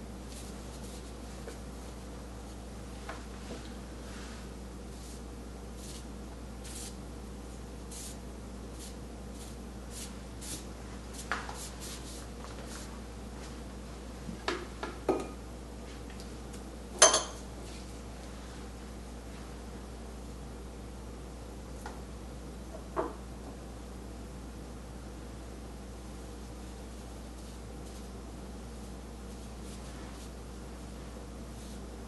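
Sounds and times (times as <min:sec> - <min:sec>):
ink brush swishing on paper: 0:00.2 - 0:02.0, 0:03.3 - 0:07.0, 0:07.9 - 0:12.9, 0:26.5 - 0:28.2, 0:28.8 - 0:31.9.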